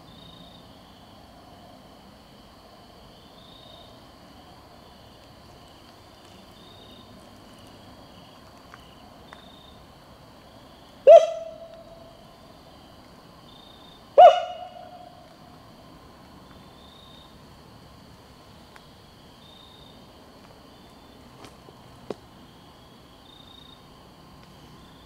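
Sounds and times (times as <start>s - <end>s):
insects trilling: 0.0s - 25.0s
loud swooping hoots: 11.1s - 12.1s, 14.2s - 15.2s.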